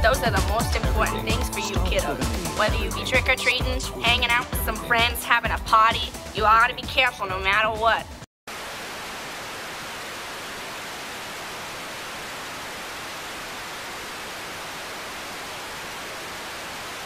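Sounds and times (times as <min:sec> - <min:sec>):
television static hiss: 0:08.5 - 0:17.0.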